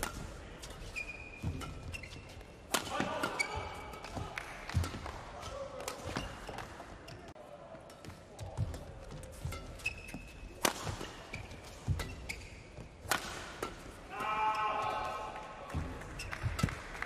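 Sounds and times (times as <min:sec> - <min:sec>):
shoes squeaking on court: 0:00.0 - 0:05.0, 0:05.9 - 0:13.1, 0:16.0 - 0:16.8
racket striking shuttlecock: 0:00.0 - 0:06.7, 0:07.9 - 0:14.4.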